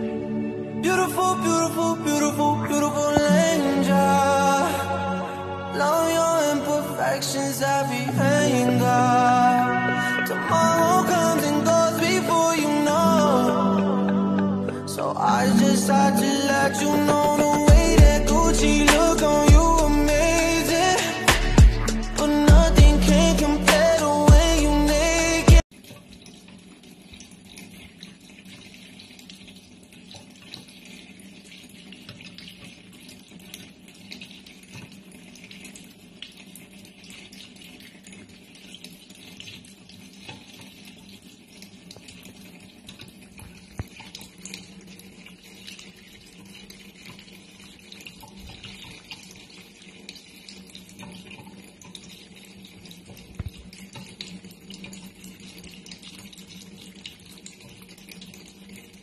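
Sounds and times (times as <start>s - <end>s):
water running into steel sink: 25.7s - 59.0s.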